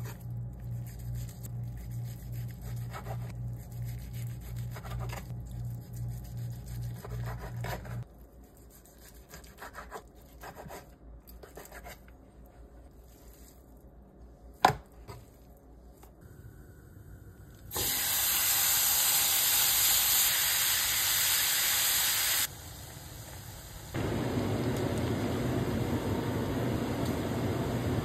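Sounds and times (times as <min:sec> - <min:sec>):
bacon sizzling in a frying pan: 0:17.8 - 0:23.9.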